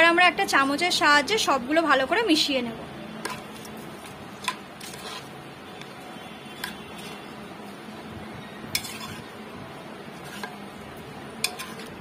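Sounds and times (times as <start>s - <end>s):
spoon stirring in a pot: 3.2s - 7.4s, 8.6s - 12.0s
spoon clinking against pot: 11.4s - 11.9s.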